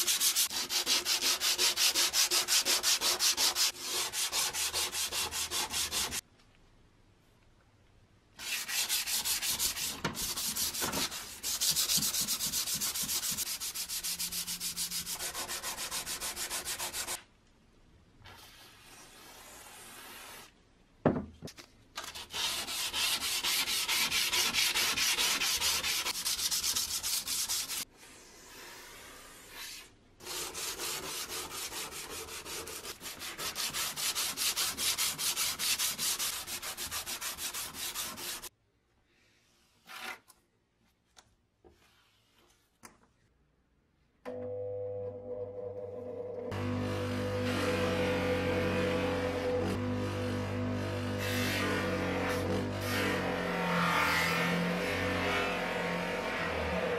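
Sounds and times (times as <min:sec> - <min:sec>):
sandpaper rubbing: 0:00.0 - 0:06.2, 0:08.4 - 0:17.2, 0:22.0 - 0:38.5.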